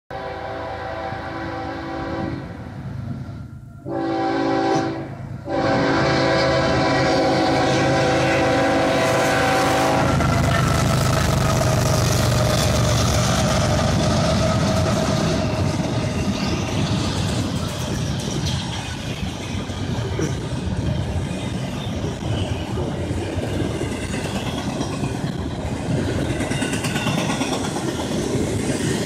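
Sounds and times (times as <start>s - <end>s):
locomotive air horn chord: 0.1s - 2.7s, 3.6s - 10.3s
locomotive rumble: 0.6s - 29.0s
rail cars clattering on rails: 5.5s - 29.0s.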